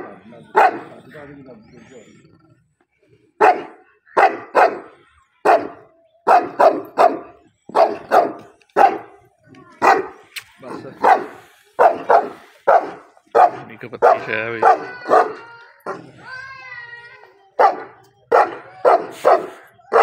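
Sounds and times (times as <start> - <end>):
large dog barking: 0.0 - 1.0, 3.4 - 16.2, 17.6 - 20.0.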